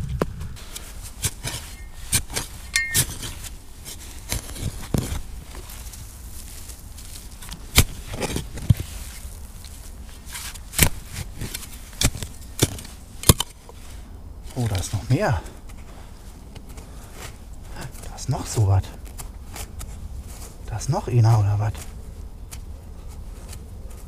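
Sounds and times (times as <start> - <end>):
soil crackling: 0.6 - 24.0
spade stabbing and scraping soil: 0.8 - 13.6.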